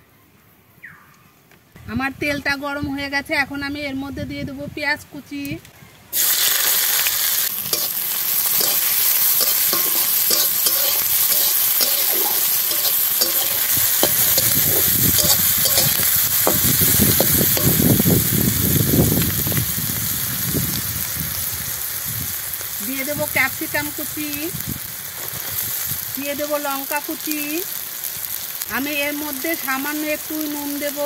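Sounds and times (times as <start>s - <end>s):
onions sizzling in hot oil: 6.1s - 31.0s
metal spatula scraping a pan: 7.7s - 17.8s.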